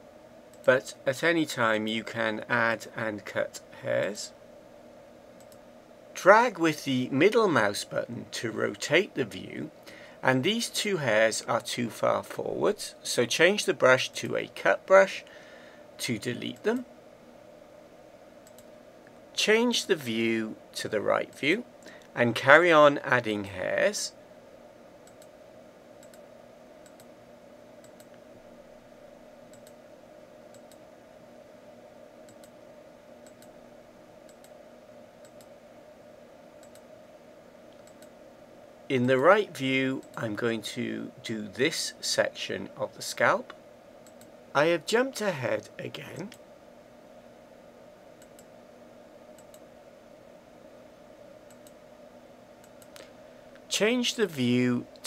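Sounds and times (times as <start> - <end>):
steady faint hum: 0.0 - 55.0
computer mouse clicks: 5.4 - 5.6, 18.4 - 18.7, 25.0 - 25.3, 26.0 - 26.2, 26.8 - 27.1, 27.8 - 28.2, 29.5 - 29.8, 30.5 - 30.8, 32.3 - 32.6, 33.2 - 33.5, 34.3 - 34.6, 35.2 - 35.5, 36.6 - 36.9, 37.7 - 38.2, 44.0 - 44.3, 48.2 - 48.5, 49.4 - 49.6, 51.5 - 51.8, 52.6 - 53.1.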